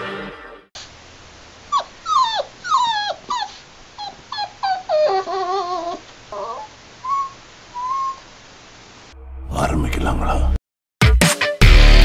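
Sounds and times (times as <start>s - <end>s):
puppy whimpering and whining: 1.7s - 8.2s.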